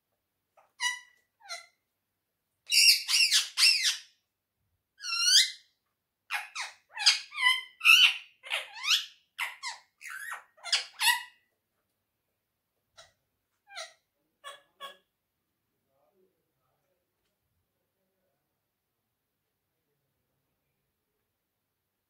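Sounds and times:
parakeet high-pitched calls: 0.6s - 1.8s, 2.7s - 4.1s, 5.0s - 5.6s, 6.3s - 11.4s.

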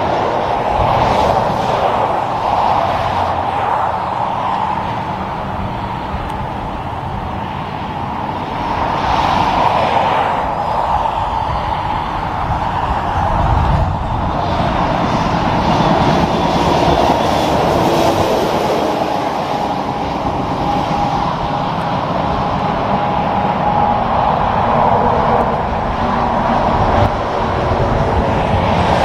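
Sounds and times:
truck passing with diesel rumble: 0.0s - 29.0s.

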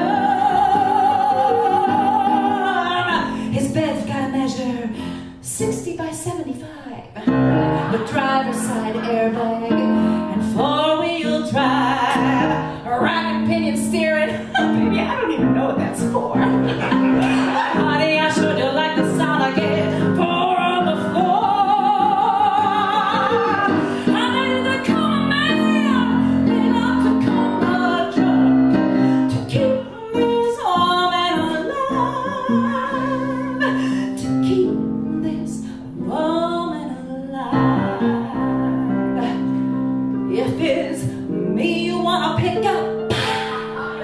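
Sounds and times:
woman singing into a microphone: 0.0s - 16.6s, 17.4s - 39.6s, 40.3s - 44.0s
instrumental accompaniment: 37.6s - 44.0s.

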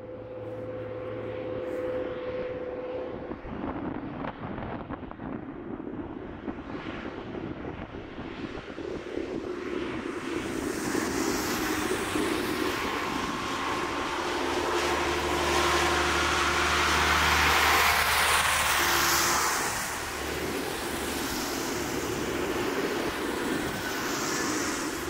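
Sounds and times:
tractor diesel engines: 0.0s - 3.1s, 10.4s - 25.0s
low engine drone: 0.0s - 6.6s, 9.0s - 25.0s
tyres hissing on wet road: 10.5s - 25.0s.

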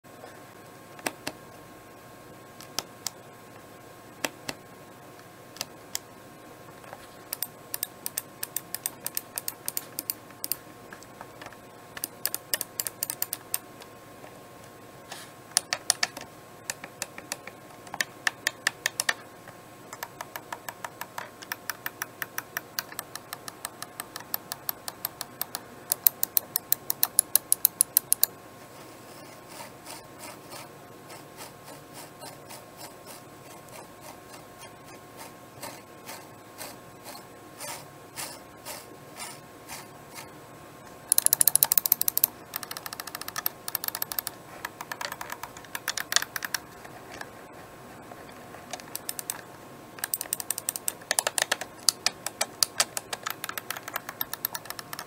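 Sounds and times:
scroll wheel ticking: 7.3s - 10.6s, 12.0s - 13.6s, 20.0s - 28.3s, 41.1s - 46.6s, 48.7s - 49.4s, 50.0s - 55.0s.

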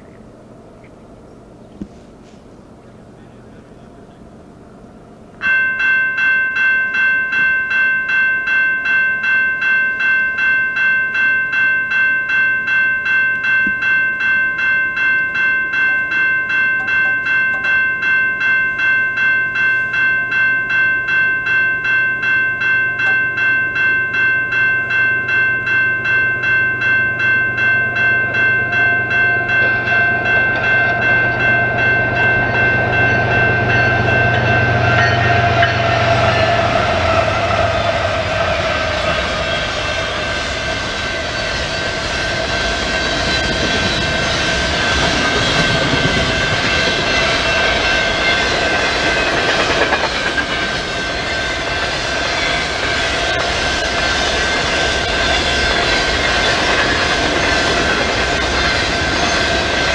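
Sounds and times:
diesel locomotives rumbling: 0.0s - 5.5s, 22.9s - 59.9s
crossing warning bell ringing: 5.4s - 59.9s.

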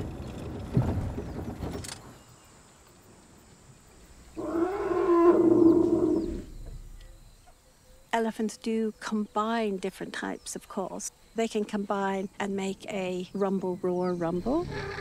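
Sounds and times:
elephant roaring call: 4.4s - 6.6s, 14.6s - 15.0s.

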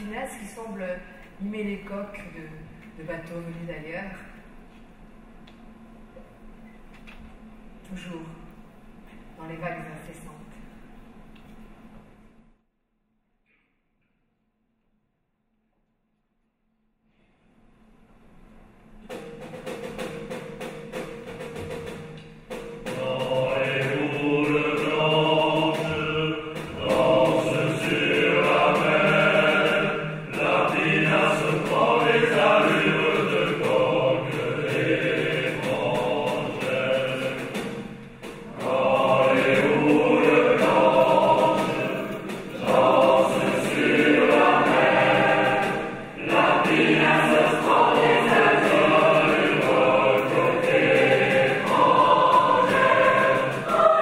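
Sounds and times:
choir singing with orchestra: 19.1s - 54.0s.

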